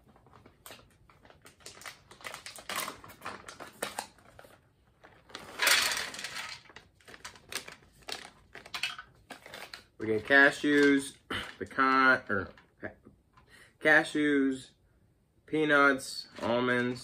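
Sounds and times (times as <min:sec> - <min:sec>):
plastic pouch rustling and crinkling: 0:00.0 - 0:11.0.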